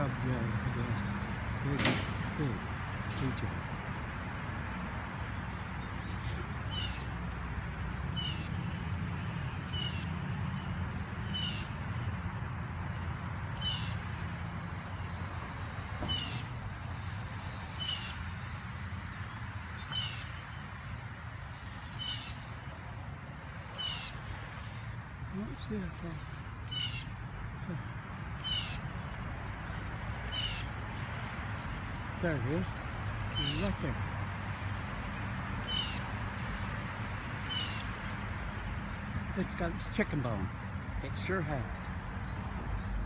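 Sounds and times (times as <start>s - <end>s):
bird harsh call: 5.5s - 7.3s, 8.1s - 11.9s, 13.5s - 14.2s, 15.4s - 16.6s, 17.7s - 18.3s, 19.8s - 20.6s, 21.9s - 22.5s, 23.6s - 24.9s, 26.1s - 29.2s, 30.1s - 31.2s, 31.8s - 33.9s, 35.6s - 36.1s, 37.4s - 38.1s.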